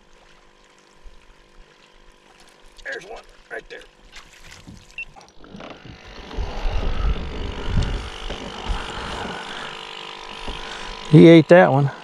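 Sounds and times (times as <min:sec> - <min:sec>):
wind buffeting microphone: 0:05.8 - 0:09.5.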